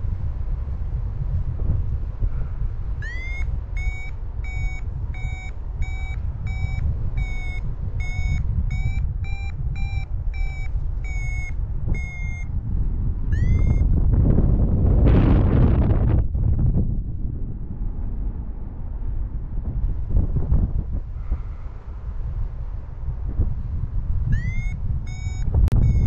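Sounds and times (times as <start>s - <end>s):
wind on microphone: 0.0s - 26.0s
variometer high beeps: 3.0s - 12.6s, 13.3s - 14.0s, 24.3s - 26.0s.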